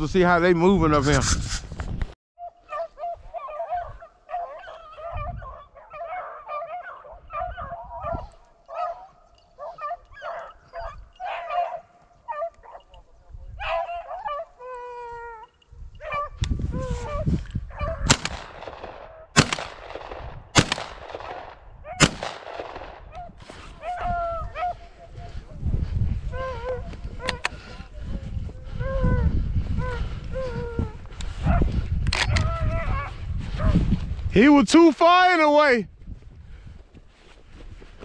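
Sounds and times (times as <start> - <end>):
dog howl: 2.4 - 9.1, 23.8 - 24.8
hounds baying: 2.4 - 19.3, 23.1 - 25.6, 26.2 - 29.2
loud sharp cracks: 18.1 - 23.1.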